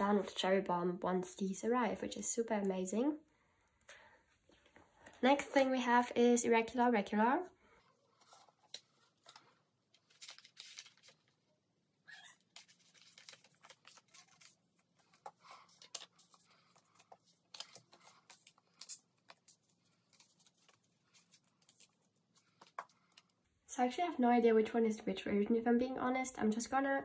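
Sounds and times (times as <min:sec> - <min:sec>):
plastic sleeves crinkling: 0:08.1 - 0:11.5, 0:12.2 - 0:23.4.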